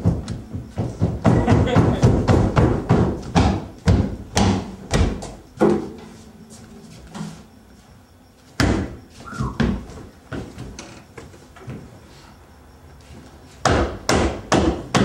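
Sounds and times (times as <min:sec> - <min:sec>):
irregular thumps and knocks: 0:00.0 - 0:05.9.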